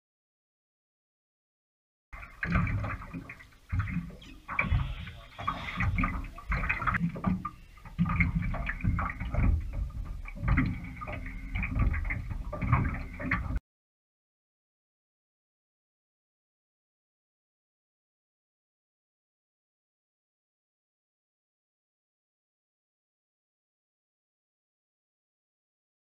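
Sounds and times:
water splashing against boat hull: 0:02.2 - 0:13.6.

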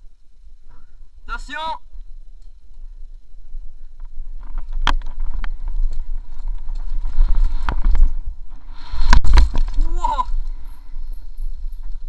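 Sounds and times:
bike tyres rumbling on dirt: 0:01.8 - 0:12.0
bike frame and chain rattle: 0:02.0 - 0:08.5, 0:09.3 - 0:12.0.

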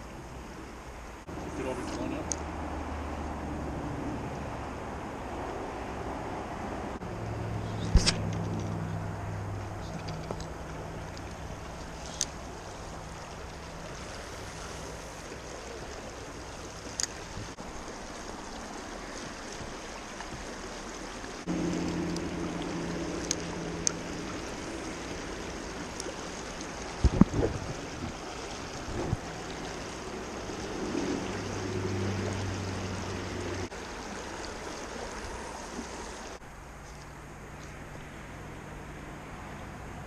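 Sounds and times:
creek water running over riffles: 0:00.0 - 0:40.0
low hum: 0:21.4 - 0:34.1.

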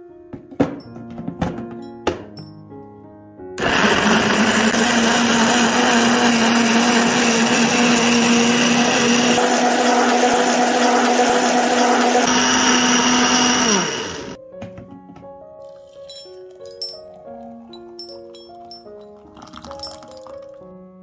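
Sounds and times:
blender motor running: 0:03.6 - 0:14.4
blender motor winding down: 0:03.6 - 0:14.4.

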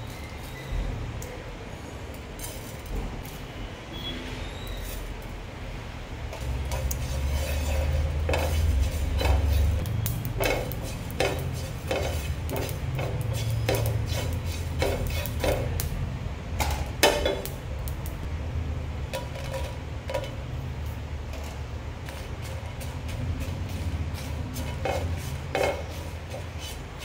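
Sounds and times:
spatula scraping seeds in pan: 0:06.3 - 0:16.0, 0:21.3 - 0:27.0.

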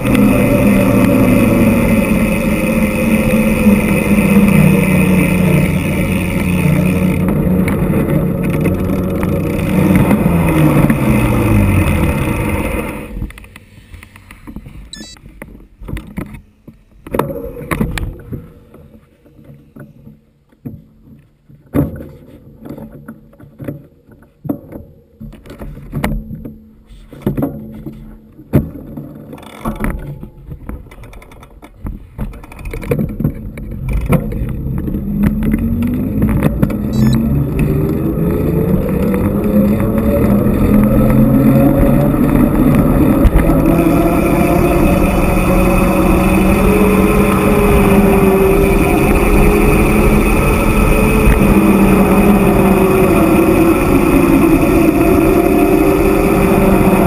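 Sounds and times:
engine accelerating: 0:00.0 - 0:13.3, 0:34.5 - 0:57.0
motor vehicle engine: 0:00.0 - 0:13.8
wind and road noise: 0:00.0 - 0:57.0.

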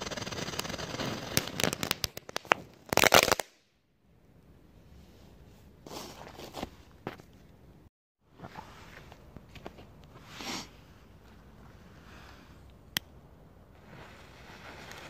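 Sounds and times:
firework crackling: 0:00.0 - 0:03.6.

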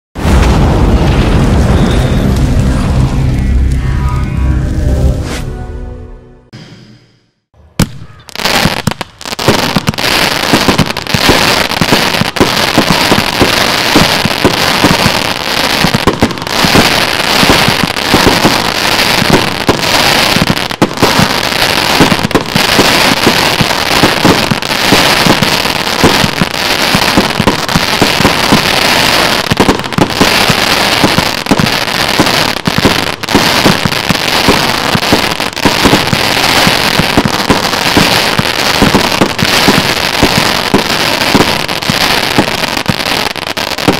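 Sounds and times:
fireworks crackling and bursting: 0:00.2 - 0:03.9, 0:07.8 - 0:43.9.

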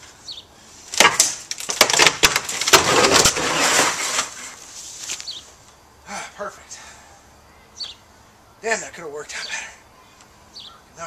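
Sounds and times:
wooden fence boards cracking: 0:00.9 - 0:05.3.

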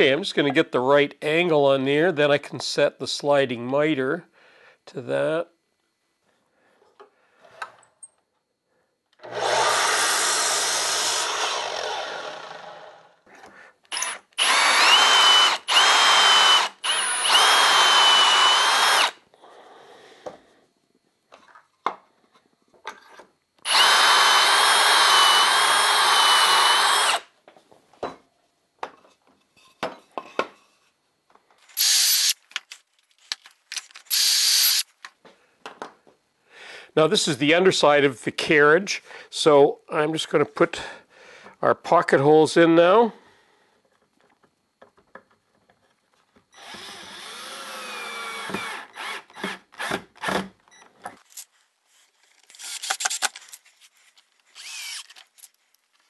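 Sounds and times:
cordless drill whining: 0:09.2 - 0:13.1, 0:13.9 - 0:19.2, 0:23.6 - 0:27.3, 0:31.8 - 0:32.4, 0:34.1 - 0:34.9, 0:46.6 - 0:50.4, 0:54.5 - 0:55.3
miter saw cut: 0:09.2 - 0:13.1, 0:13.9 - 0:19.2, 0:23.7 - 0:27.2, 0:34.1 - 0:34.8, 0:54.6 - 0:55.2.

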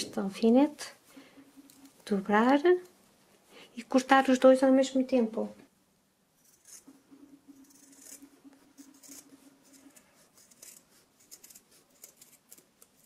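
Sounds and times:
scissors snipping fabric: 0:07.6 - 0:13.0.

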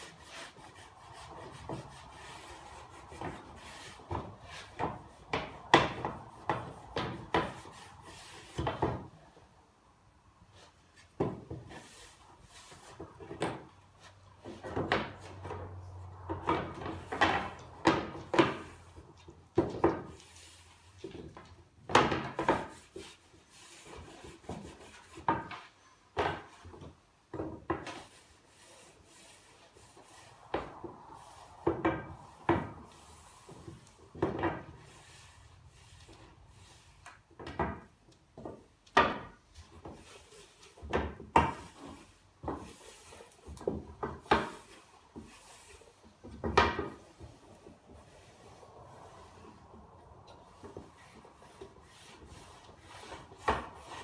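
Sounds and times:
rag rubbing wood: 0:00.0 - 0:09.1, 0:16.2 - 0:54.0
wooden boards knocking: 0:04.1 - 0:07.6, 0:16.3 - 0:18.7, 0:21.8 - 0:22.8, 0:37.4 - 0:40.0, 0:46.3 - 0:47.0.

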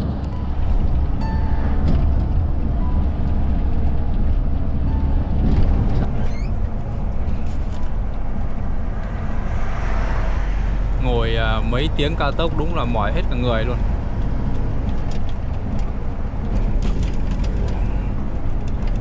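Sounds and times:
vehicle engine and tyre rumble: 0:00.0 - 0:19.0.

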